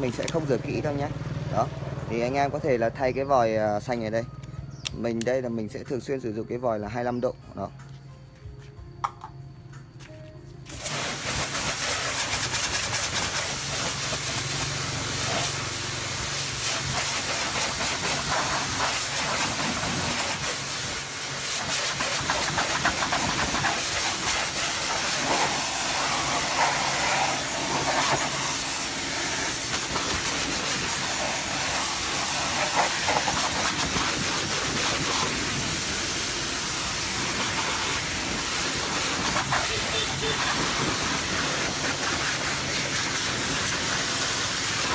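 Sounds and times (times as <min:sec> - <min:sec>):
pressure washer jet hissing: 0:10.7 - 0:44.9.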